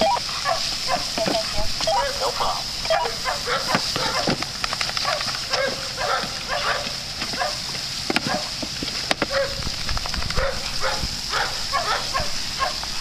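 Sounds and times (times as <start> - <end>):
dogs barking: 0.0 - 8.6, 9.2 - 9.7, 10.3 - 13.0
sprinkler spraying water: 0.0 - 13.0.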